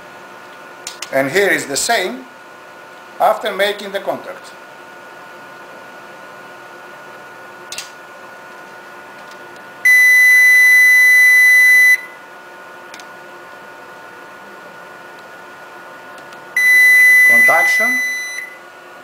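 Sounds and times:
high-pitched multimeter beep: 9.8s - 12.2s, 16.6s - 18.6s.

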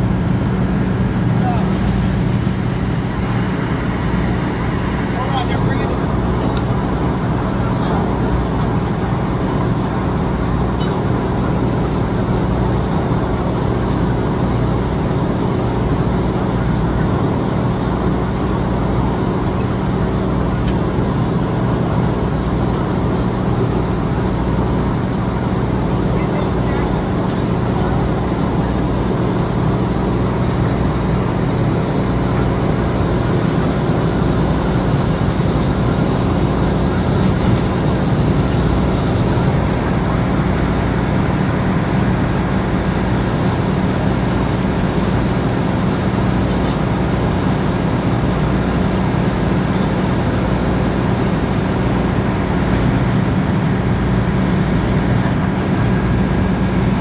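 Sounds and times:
engine droning: 0.0s - 57.0s.

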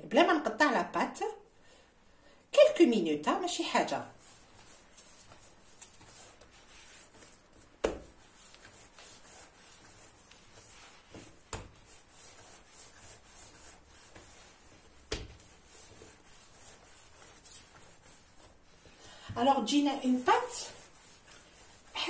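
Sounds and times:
dough rubbing and pressing: 3.6s - 22.0s
dough thumping on countertop: 7.7s - 8.2s, 11.1s - 11.9s, 15.0s - 15.5s.

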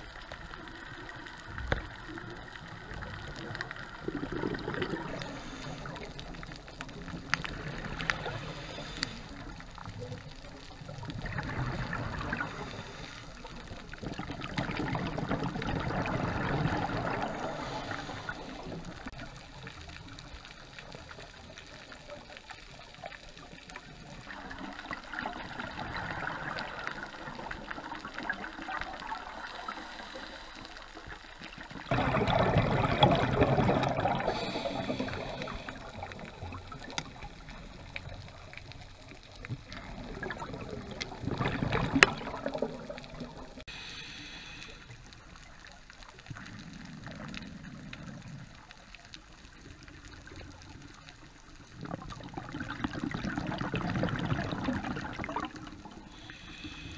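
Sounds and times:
faint clicks: 0.0s - 15.4s, 33.6s - 52.9s
underwater exhaled bubbles gushing: 0.0s - 43.7s, 44.9s - 56.9s
quiet inhalations: 4.8s - 14.2s, 16.8s - 22.3s, 25.8s - 32.0s, 32.8s - 49.0s, 55.2s - 56.9s.

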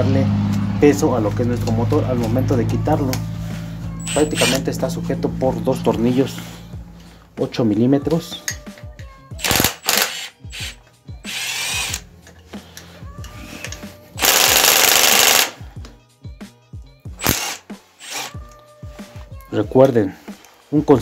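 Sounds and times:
cordless drill spinning: 4.0s - 4.7s, 9.4s - 12.1s, 14.2s - 15.6s, 17.2s - 18.4s
tool and metal clicks and knocks: 8.4s - 9.2s.

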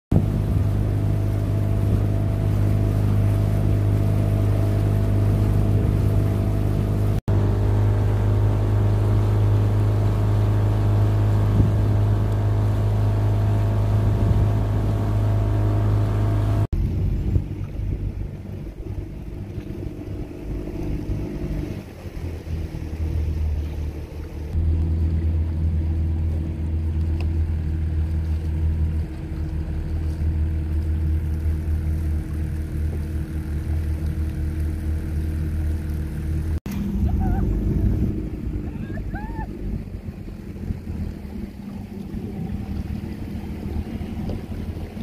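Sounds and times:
motorboat engine droning: 0.1s - 45.0s
uneven low rumble: 0.1s - 45.0s.

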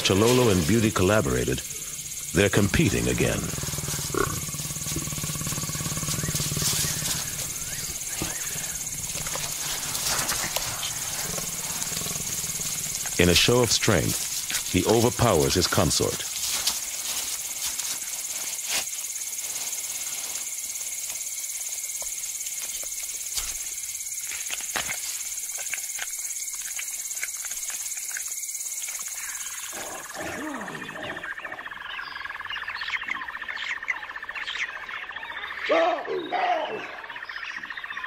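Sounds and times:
low animal calls: 0.0s - 15.6s, 29.1s - 31.8s
insect chorus ringing: 0.0s - 38.0s.

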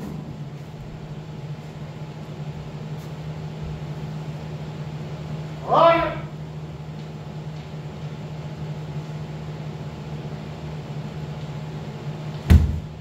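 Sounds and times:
steady low hum: 0.0s - 13.0s
foot stamping on wooden floor: 12.5s - 13.0s.

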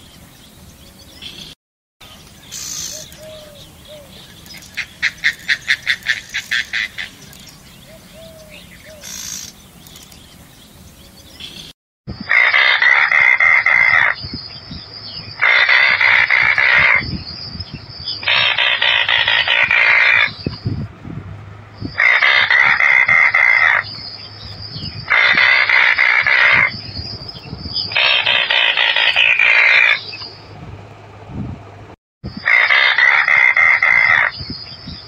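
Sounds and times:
bird rattling call: 2.1s - 10.4s, 15.4s - 17.1s, 18.2s - 20.6s, 21.9s - 24.1s, 25.0s - 27.1s, 27.7s - 30.3s.

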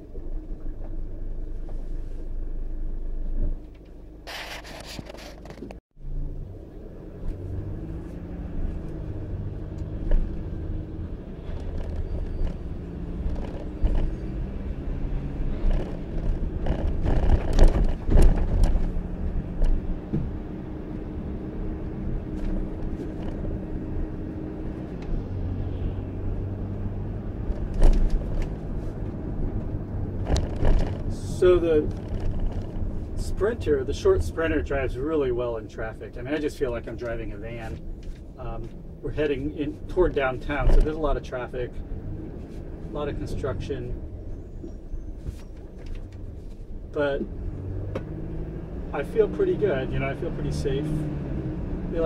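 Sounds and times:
van engine and road drone: 0.0s - 52.0s
wheels thumping over bumps: 8.6s - 21.1s, 27.2s - 33.3s.

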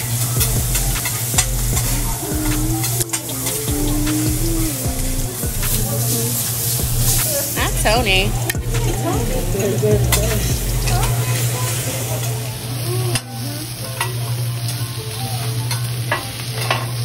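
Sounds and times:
low hum: 0.0s - 11.6s
meat sizzling on griddle: 0.0s - 17.0s.

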